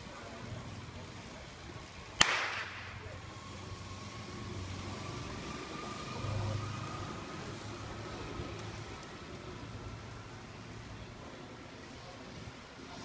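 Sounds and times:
faint motorcycle engine: 0.0 - 13.0
starting pistol crack: 2.2 - 3.0.

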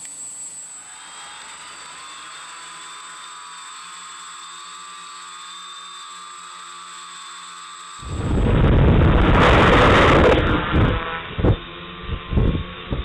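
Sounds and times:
drone motors whining: 0.0 - 13.0
loud rush of noise: 8.0 - 11.0.

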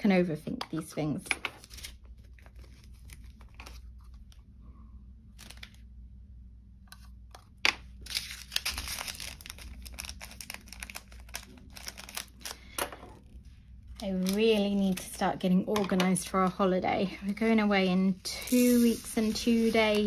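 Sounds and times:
plastic bags crinkling: 8.0 - 15.4.

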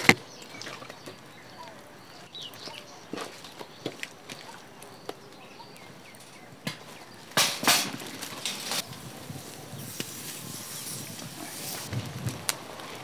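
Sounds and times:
fire embers raked with stick: 2.5 - 13.0
coals hissing: 7.0 - 13.0.

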